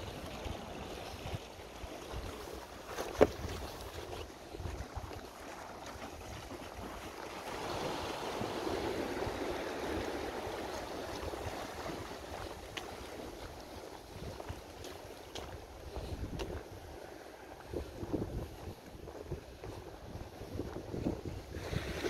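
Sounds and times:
wind rumbling on microphone: 0.0 - 22.0.

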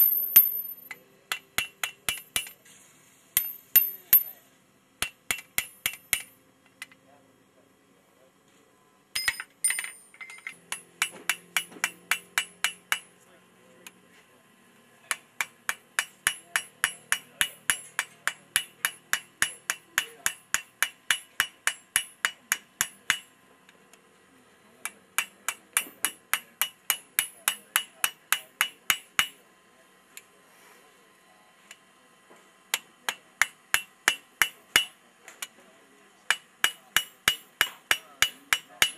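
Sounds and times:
hammer striking steel on anvil: 0.0 - 2.6, 3.4 - 4.4, 5.0 - 7.0, 9.2 - 13.1, 15.0 - 23.4, 24.8 - 29.4, 32.7 - 35.5, 36.3 - 38.9.

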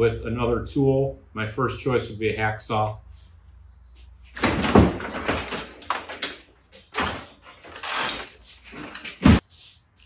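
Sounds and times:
metal hand tools clattering: 4.4 - 9.1.

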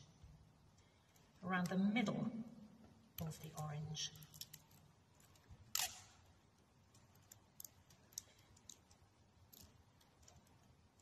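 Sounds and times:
faint clicks and handling: 0.2 - 1.8, 3.1 - 11.0
tape ripping off roll: 5.7 - 6.2.

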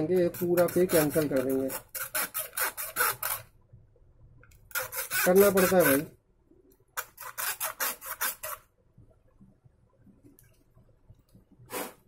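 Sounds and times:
metal tool scraping: 0.0 - 3.5, 4.7 - 6.1.

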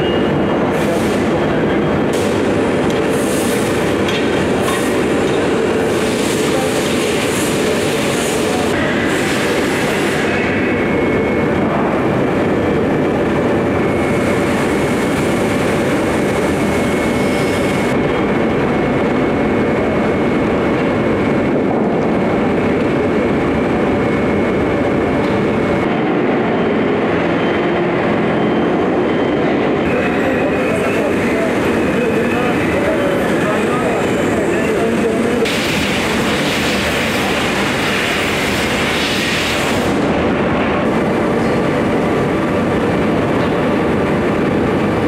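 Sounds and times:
loud steady machinery noise: 0.0 - 45.0.

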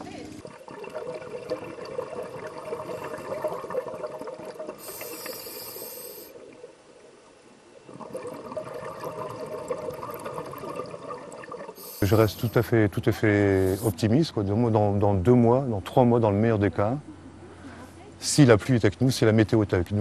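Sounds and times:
diver breathing bubbles: 2.2 - 6.4
short bright hiss: 4.8 - 6.3, 11.8 - 12.6, 13.6 - 14.0.

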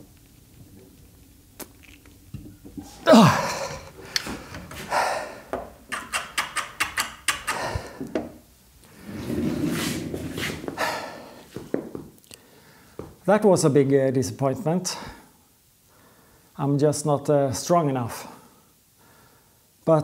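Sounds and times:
man grunting with effort: 2.8 - 3.9
heavy breathing: 2.8 - 5.6, 7.4 - 8.2, 10.7 - 11.7.

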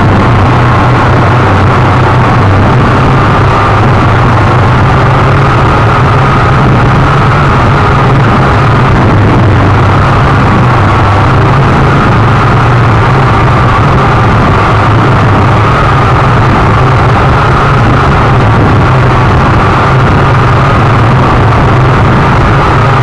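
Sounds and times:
drone motors buzzing: 0.0 - 23.0.

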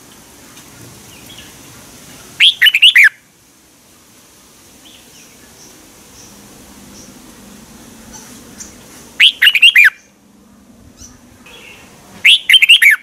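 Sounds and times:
faint bird chirps: 2.4 - 3.2, 8.1 - 10.2, 11.0 - 13.0.

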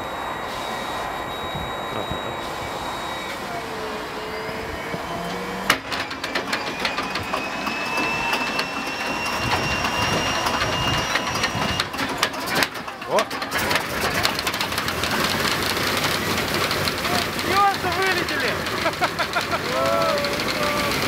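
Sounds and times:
engine starter whine: 0.0 - 21.0
engine clicks and pops firing: 5.7 - 7.3, 11.8 - 19.5.

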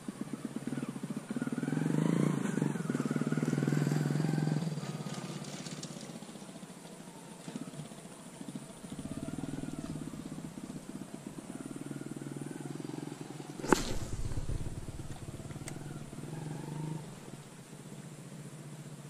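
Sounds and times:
small motorcycle engine running: 0.0 - 19.0
sharp click: 13.6 - 16.1
low rumble: 13.6 - 17.5.

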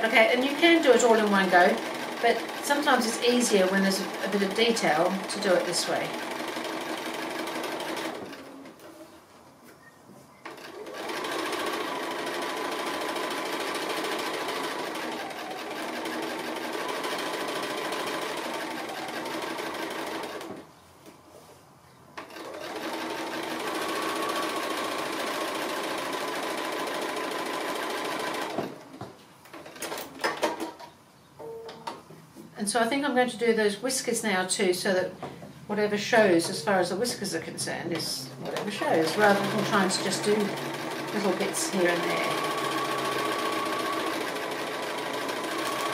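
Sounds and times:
sewing machine running: 0.0 - 8.6, 10.5 - 20.6, 22.2 - 28.8, 38.3 - 45.9.

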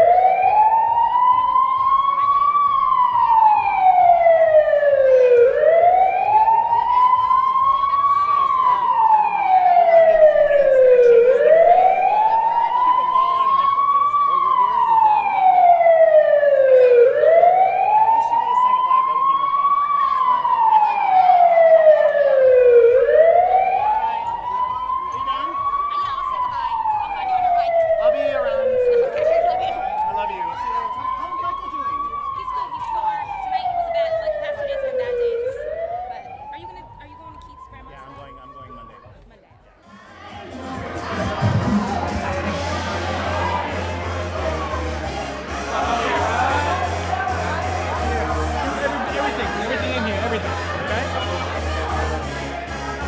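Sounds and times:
wailing siren sound effect: 0.0 - 39.2, 41.0 - 53.0
dance music with low beat: 36.2 - 53.0.

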